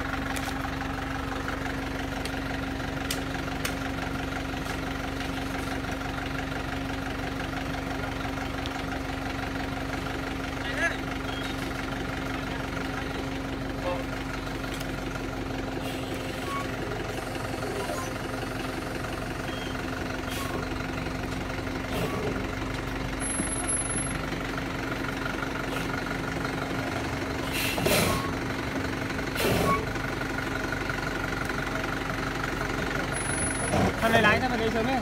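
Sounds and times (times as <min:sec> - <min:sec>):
diesel truck engine idling: 0:00.0 - 0:35.0.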